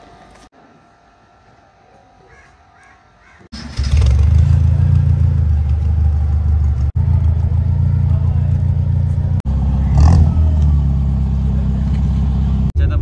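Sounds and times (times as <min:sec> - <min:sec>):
car engine running: 0:03.6 - 0:13.0.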